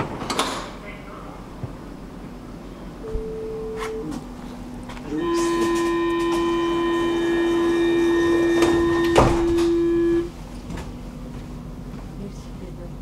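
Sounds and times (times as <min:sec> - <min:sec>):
train doors thudding shut: 0:00.0 - 0:00.8, 0:03.0 - 0:11.0
door warning tone: 0:03.0 - 0:10.4.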